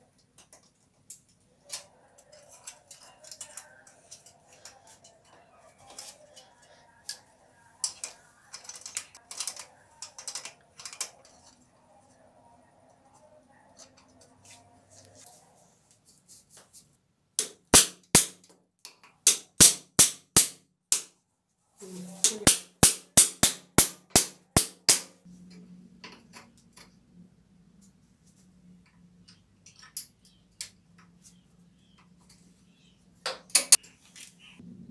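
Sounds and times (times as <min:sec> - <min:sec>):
hammer striking metal tool: 0:17.4 - 0:18.4, 0:19.3 - 0:21.1, 0:22.4 - 0:25.2.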